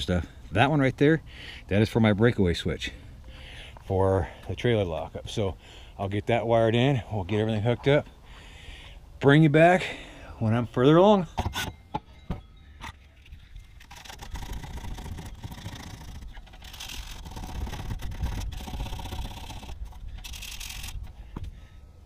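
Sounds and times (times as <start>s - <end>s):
cables scraping and rustling: 12.8s - 21.6s.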